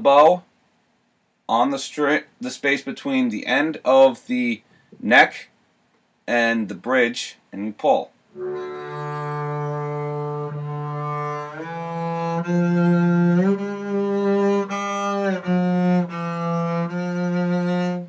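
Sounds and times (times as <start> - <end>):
double bass bowed notes: 8.3 - 18.0.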